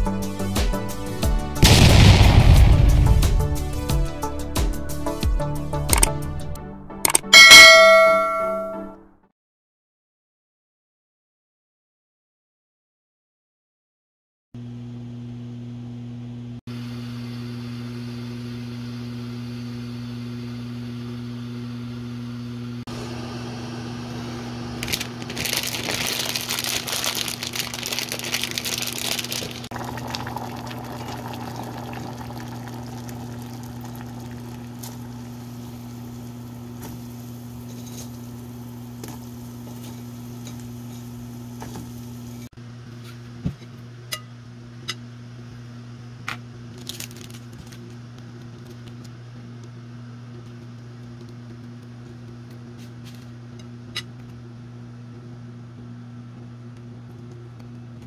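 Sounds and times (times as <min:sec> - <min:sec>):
water pouring into ceramic bowl: 0:28.5 - 0:35.6
steady low hum: 0:28.7 - 0:46.1.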